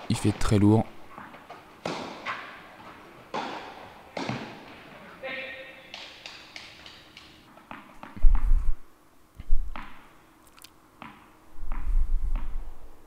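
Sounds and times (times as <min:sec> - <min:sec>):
dull low thumps: 0:08.2 - 0:08.8.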